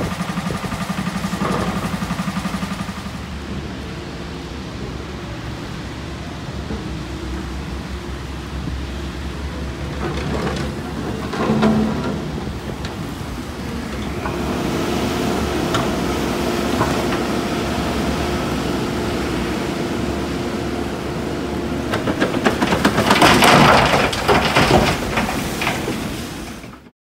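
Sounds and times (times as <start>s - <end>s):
rapid knocking and rattling: 0.0s - 3.2s, 21.9s - 26.9s
engine drone: 0.0s - 26.9s
tyre noise on wet road: 0.0s - 26.9s.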